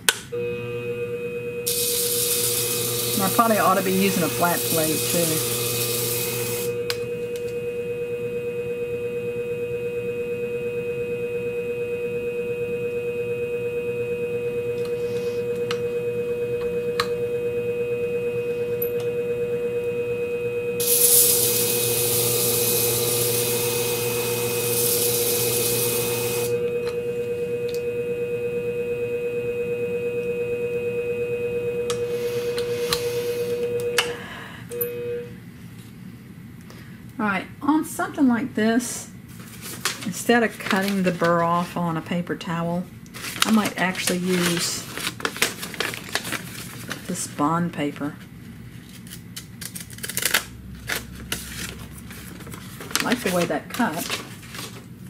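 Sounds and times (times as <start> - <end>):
sharpening machine motor hum: 0.0 - 35.3
blade grinding on hone plate: 1.7 - 6.7.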